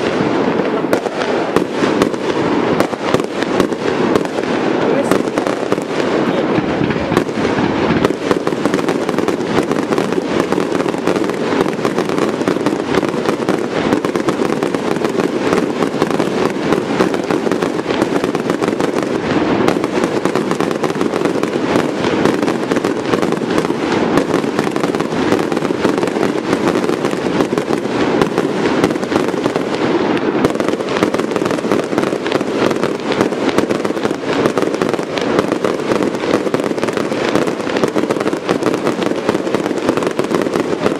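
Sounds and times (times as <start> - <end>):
fireworks bursting and crackling: 0.0 - 40.9.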